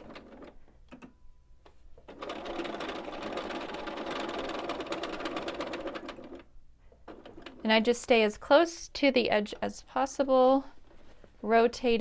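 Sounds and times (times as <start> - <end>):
sewing machine stitching: 0.0 - 0.7, 2.1 - 7.8.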